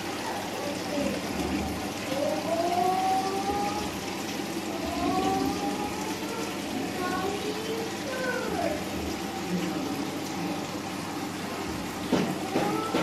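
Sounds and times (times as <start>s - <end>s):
aquarium water splashing: 0.0s - 13.0s.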